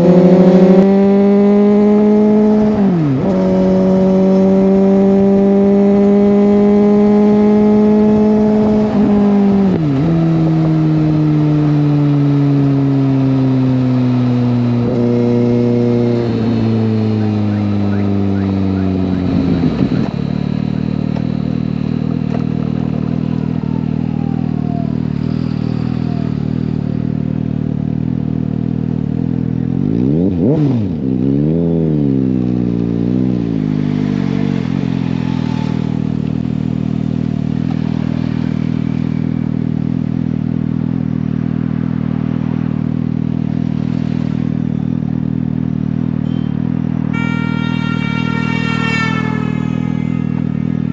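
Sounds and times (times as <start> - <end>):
engine rev blips: 0.0 - 27.4, 43.6 - 50.9
motorcycle engine idling: 16.4 - 29.8.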